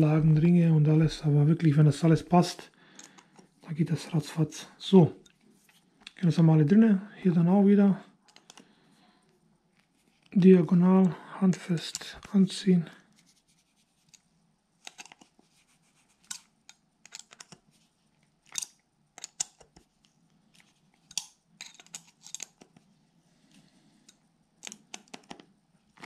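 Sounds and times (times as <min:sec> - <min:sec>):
screwdriver clicks and scrapes: 0:14.0 - 0:15.3, 0:16.1 - 0:17.6, 0:18.4 - 0:19.8, 0:21.0 - 0:22.8, 0:24.1 - 0:25.4.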